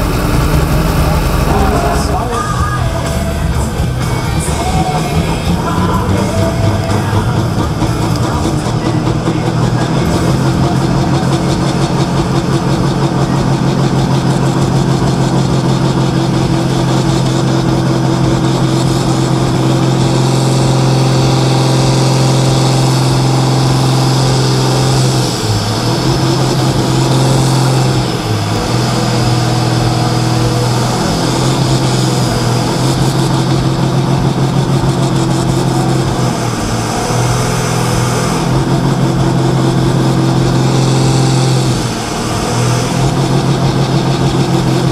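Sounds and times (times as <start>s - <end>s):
diesel tractor engine revving: 0.0s - 44.9s.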